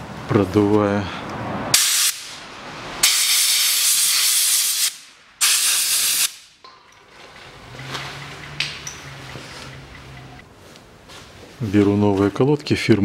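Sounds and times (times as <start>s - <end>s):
compressed air blow gun hissing: 1.8s - 2.4s, 3.0s - 6.5s.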